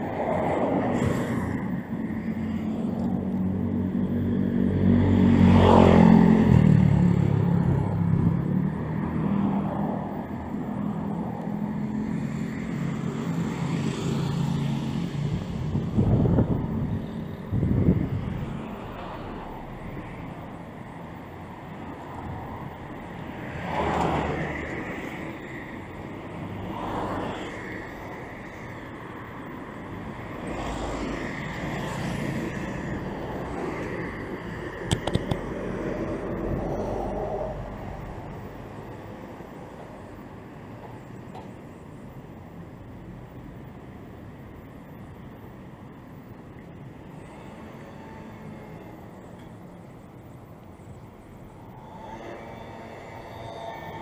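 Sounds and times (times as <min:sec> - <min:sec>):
cars passing: 0:00.0 - 0:54.0
wind buffeting microphone: 0:15.2 - 0:18.8.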